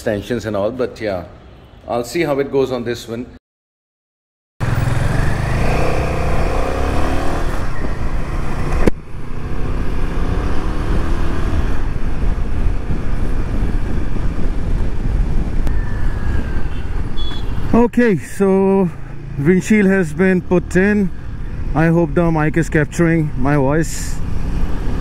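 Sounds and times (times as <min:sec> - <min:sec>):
motorcycle engine and road rumble: 0:04.6 - 0:25.0.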